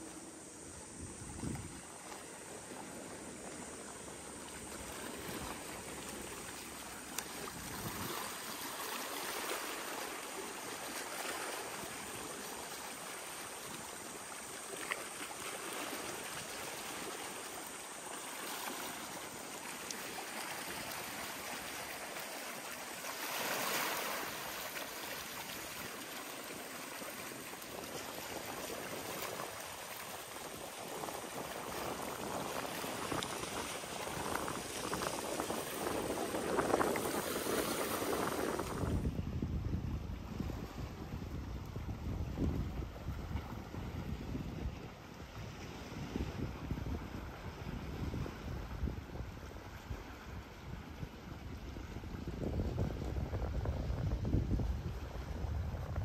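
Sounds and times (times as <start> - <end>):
waves lapping against seawall: 0.0 - 56.0.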